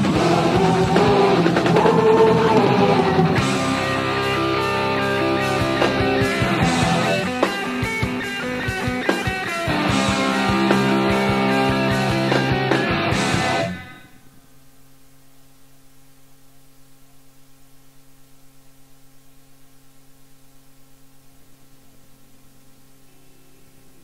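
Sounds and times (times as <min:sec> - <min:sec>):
rock band with electric guitars: 0:00.0 - 0:14.3
faint pulsing tone: 0:13.9 - 0:24.0.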